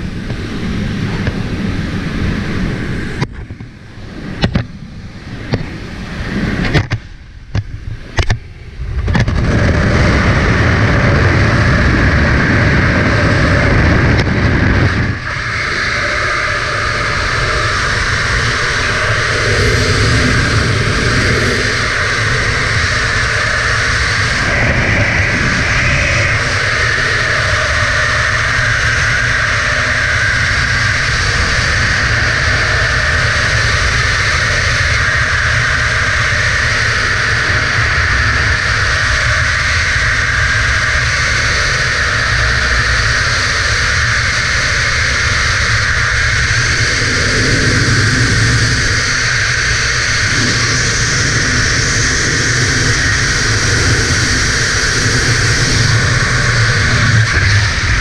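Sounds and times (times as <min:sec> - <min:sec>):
wind rushing over camera: 0:00.0 - 0:58.0.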